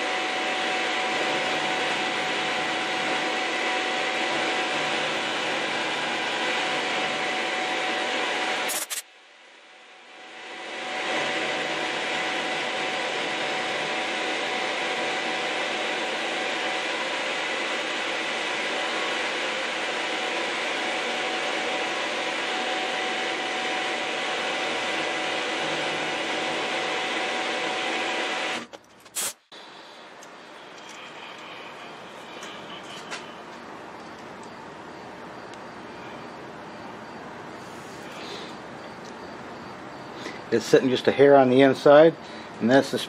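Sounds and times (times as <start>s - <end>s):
milling machine cutting metal: 0.0s - 9.0s, 10.9s - 28.7s, 30.1s - 34.3s
brief sharp noise: 8.7s - 9.0s.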